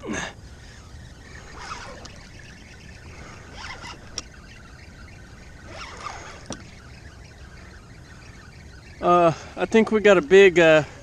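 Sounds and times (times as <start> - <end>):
low steady rumble: 0.0 - 11.0
fishing rod sweeping: 0.6 - 9.0
reel clicks: 1.4 - 7.6.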